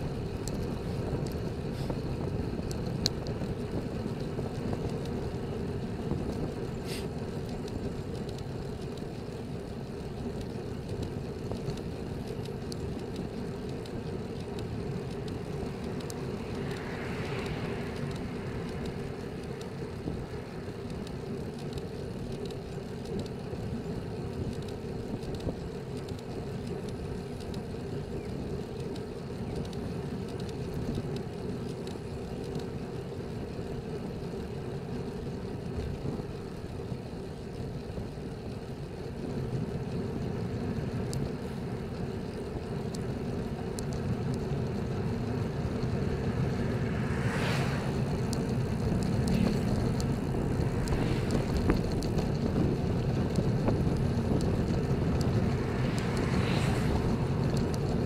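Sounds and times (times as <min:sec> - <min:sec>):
tyre and road noise: 0:00.0 - 0:58.0
wind on microphone: 0:46.1 - 0:58.0.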